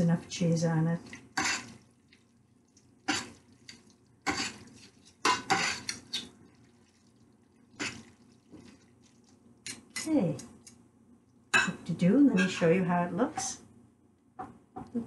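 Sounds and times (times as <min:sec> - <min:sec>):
metal utensils clinking on a pot: 0:05.2 - 0:06.3.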